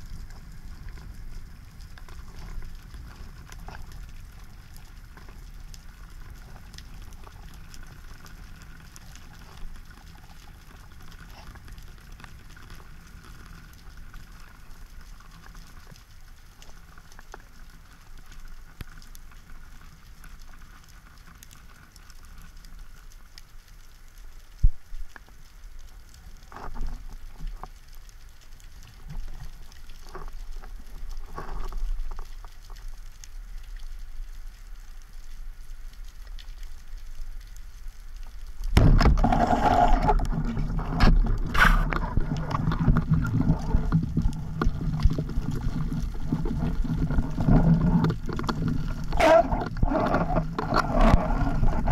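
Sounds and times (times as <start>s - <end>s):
underwater crackle of clicks: 0.0s - 51.9s
low underwater rumble: 28.8s - 51.9s.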